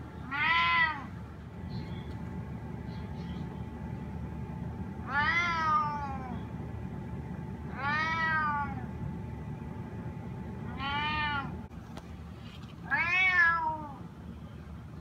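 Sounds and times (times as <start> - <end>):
cat meowing: 0.2 - 1.2, 5.0 - 6.4, 7.7 - 8.9, 10.7 - 11.6, 12.8 - 14.0.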